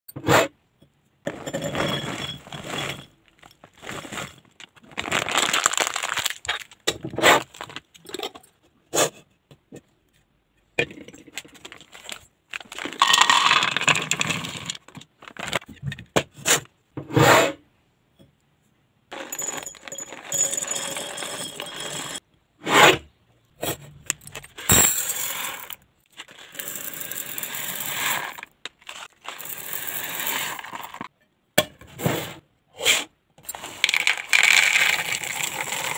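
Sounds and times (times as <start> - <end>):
plastic bag crinkling: 3.2 - 6.8, 11.4 - 15.6
dry food pouring into containers: 3.7 - 6.8, 11.5 - 15.6, 25.1 - 31.1, 33.5 - 35.9
containers clinking on a table: 13.0 - 14.6.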